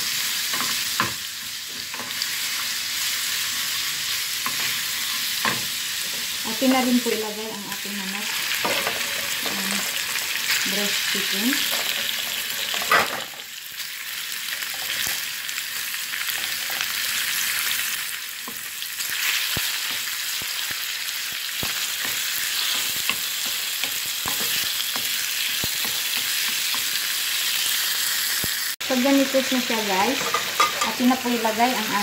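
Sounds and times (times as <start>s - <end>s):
chicken sizzling in oil: 0.0s - 32.0s.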